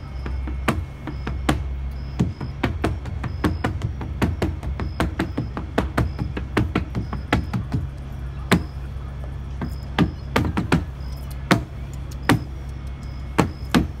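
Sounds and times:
steady low hum: 0.0s - 14.0s
dancer's feet knocking on wood: 0.4s - 8.7s.

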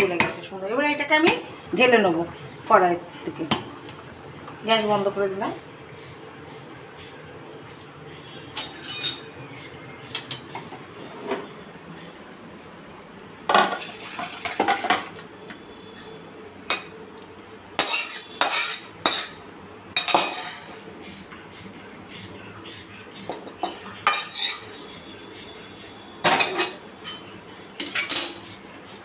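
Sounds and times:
metal spoon clinking on pot: 8.6s - 9.4s, 17.8s - 19.4s, 23.3s - 24.8s, 26.3s - 28.5s.

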